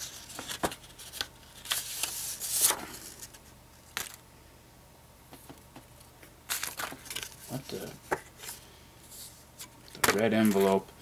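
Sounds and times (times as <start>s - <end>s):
paper crackle: 0.0s - 4.2s, 6.5s - 8.6s
paper envelope rustling: 0.0s - 4.2s, 6.5s - 8.6s.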